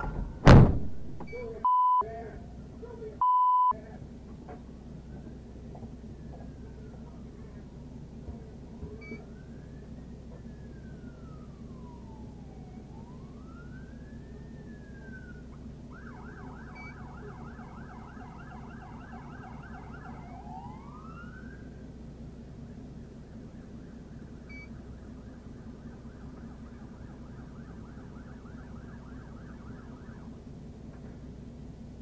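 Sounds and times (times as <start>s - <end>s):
steady low hum: 0.0s - 32.0s
police siren wailing: 8.6s - 21.9s, 22.8s - 30.4s
fast siren yelp: 8.9s - 21.8s, 23.3s - 30.4s.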